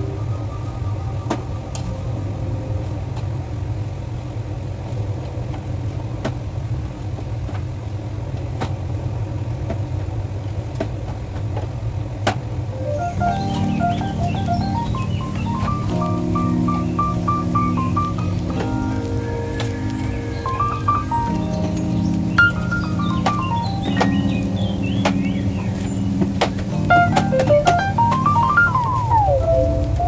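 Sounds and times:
melody: 0:00.0 - 0:04.1, 0:12.7 - 0:30.0
steady low hum: 0:00.0 - 0:30.0.

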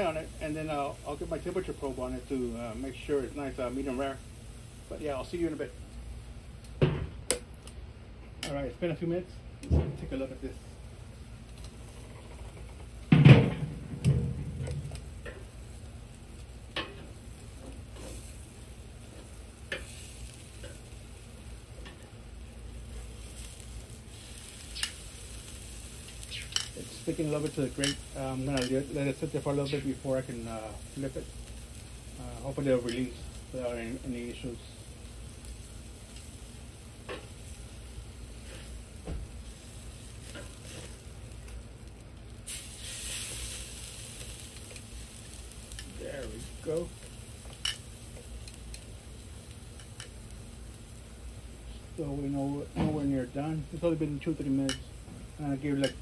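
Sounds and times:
meat sizzling on a grill: 0:00.0 - 0:56.0
metal tongs clicking on grate: 0:26.3 - 0:28.9, 0:47.5 - 0:47.8, 0:55.7 - 0:56.0.

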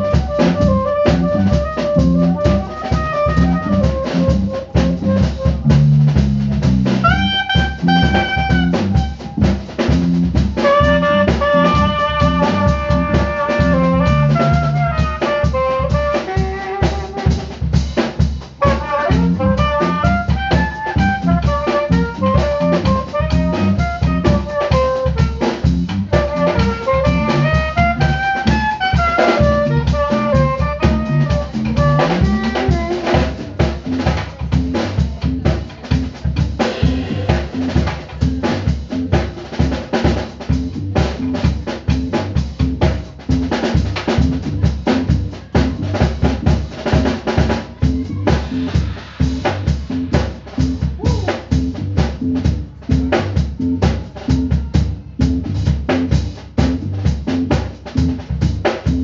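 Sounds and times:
pitched instrument melody: 0:00.0 - 0:05.9, 0:07.0 - 0:09.6, 0:10.4 - 0:17.6, 0:18.6 - 0:33.6
drum kit beat: 0:00.0 - 0:59.0.

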